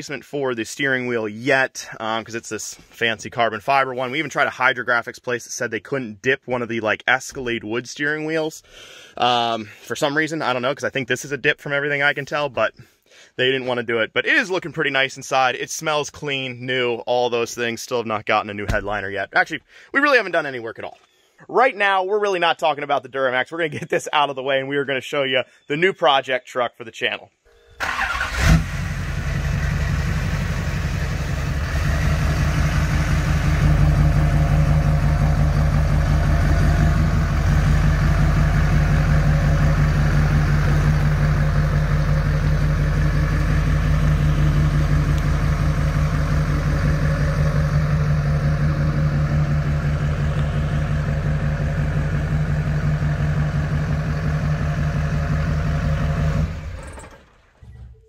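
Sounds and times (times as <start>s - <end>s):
diesel truck engine running: 27.8s - 56.9s.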